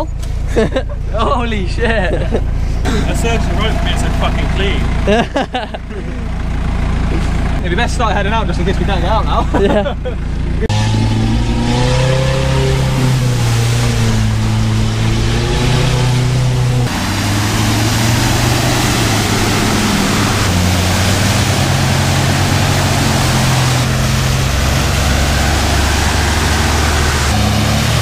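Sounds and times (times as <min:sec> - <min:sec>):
car engine running: 0:00.0 - 0:28.0
mechanical hum with stepping pitch: 0:09.8 - 0:27.7.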